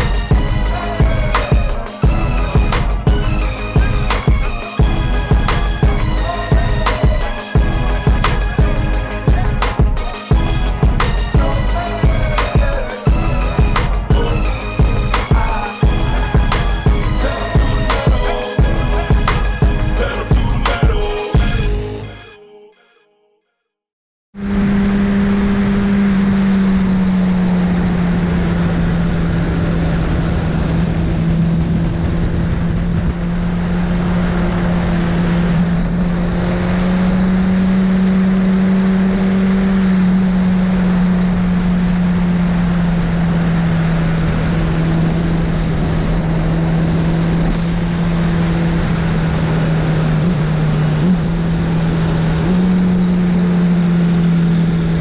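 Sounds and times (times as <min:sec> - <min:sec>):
motorcycle engine cruising: 0:00.0 - 0:22.2, 0:24.4 - 0:55.0
wind rushing over microphone: 0:24.6 - 0:37.5.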